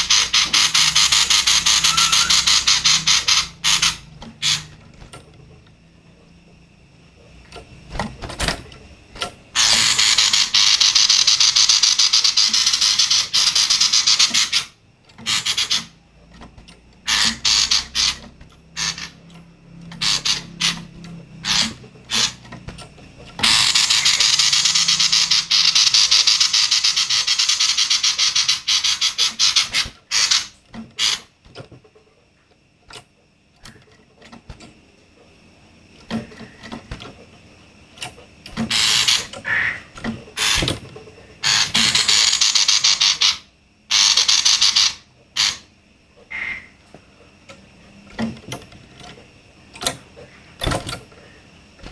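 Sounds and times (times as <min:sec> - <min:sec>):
bird chattering bursts: 0:00.0 - 0:04.7
bird rattling calls: 0:00.0 - 0:04.8, 0:09.5 - 0:16.0, 0:17.0 - 0:19.3, 0:19.9 - 0:22.5, 0:23.4 - 0:31.3, 0:38.6 - 0:40.6, 0:41.4 - 0:45.7.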